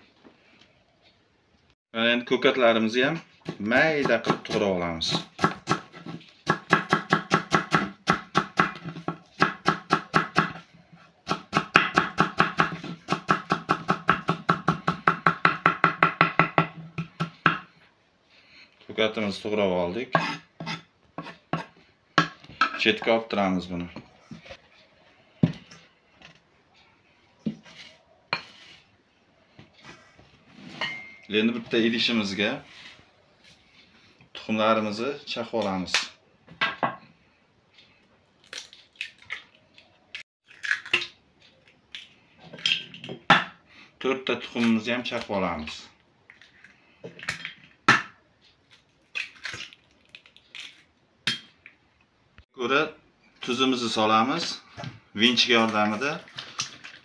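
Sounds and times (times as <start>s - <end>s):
eggshells cracking: 40.4s - 42.1s, 49.0s - 51.0s.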